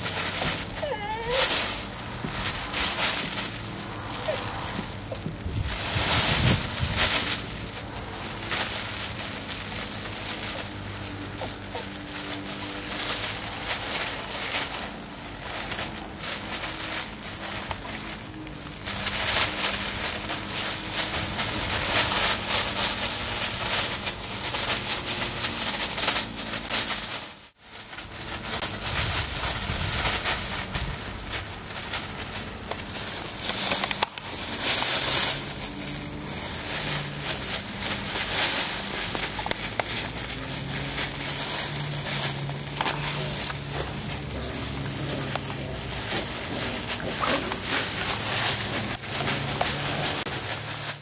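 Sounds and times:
metallic foil rustling and crackling: 0.0s - 51.0s.

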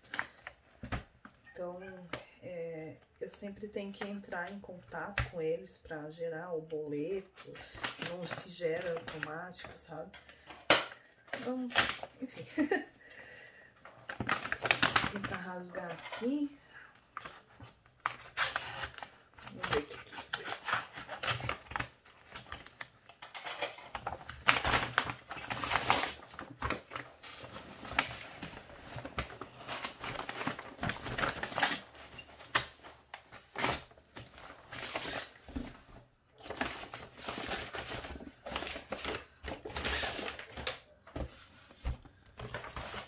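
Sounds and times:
packaging rustling and tearing: 13.8s - 16.5s, 17.2s - 43.0s.

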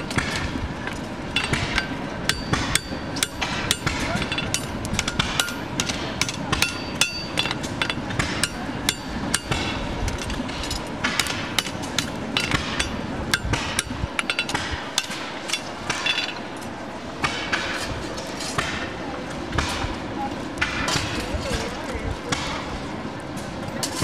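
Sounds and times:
hammer striking metal on anvil: 1.4s - 9.9s, 10.5s - 16.4s.

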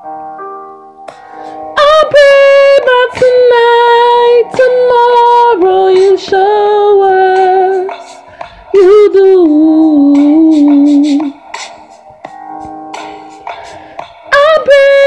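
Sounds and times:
soft musical accompaniment: 0.0s - 15.0s
woman singing slow melody: 1.7s - 8.1s, 8.7s - 11.4s, 14.3s - 15.0s.

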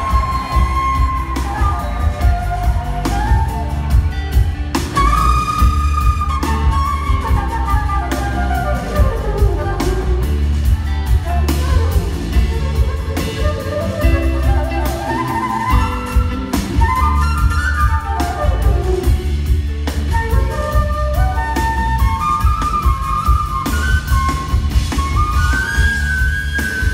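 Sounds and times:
flute soloing: 0.0s - 26.9s
live band playing: 0.0s - 26.9s.

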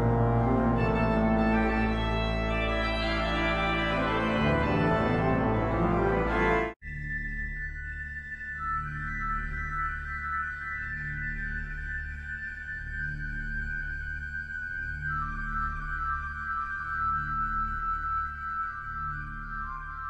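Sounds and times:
pipe organ playing chords: 0.0s - 6.8s.

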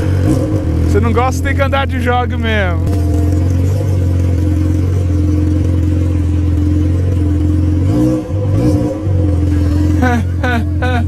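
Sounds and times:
motorcycle engine idling loudly: 0.0s - 7.9s.

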